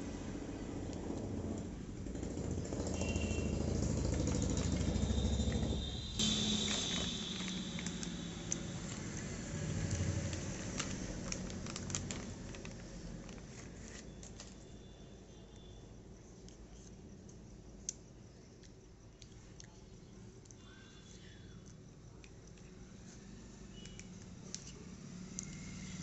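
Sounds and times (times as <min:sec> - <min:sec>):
plastic packaging rustling: 0:06.2 - 0:14.8.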